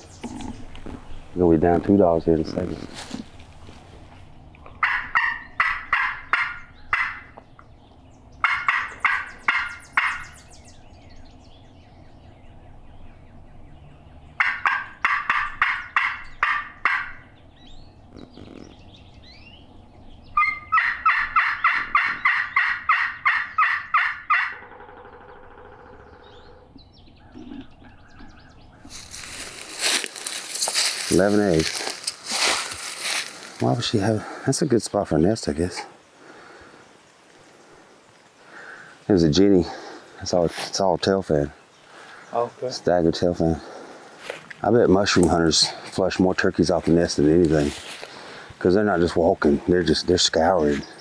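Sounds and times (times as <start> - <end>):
turkey call hen yelps: 4.7 - 7.4, 8.4 - 10.4, 14.4 - 17.3, 20.4 - 26.6.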